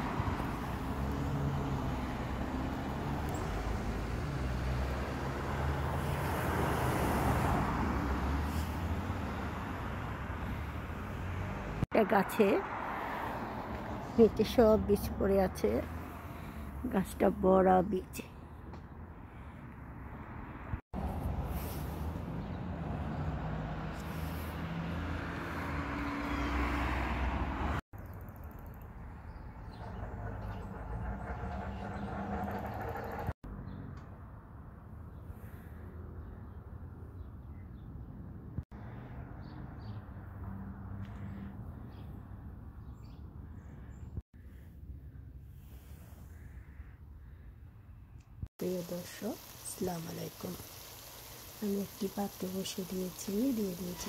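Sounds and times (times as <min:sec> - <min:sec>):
car passing by: 0:00.0 - 0:14.4, 0:19.9 - 0:27.8
low rumble of traffic: 0:00.0 - 0:54.0
vehicle engine running: 0:28.6 - 0:33.4.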